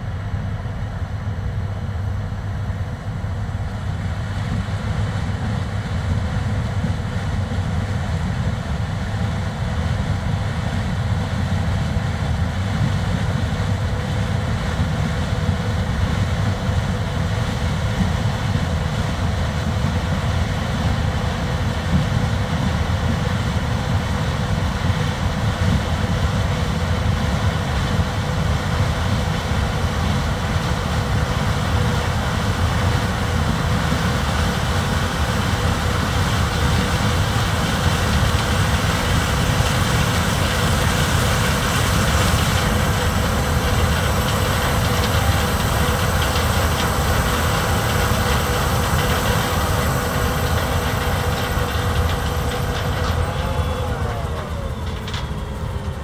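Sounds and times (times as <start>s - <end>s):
combine harvester rumbling: 0.0s - 56.0s.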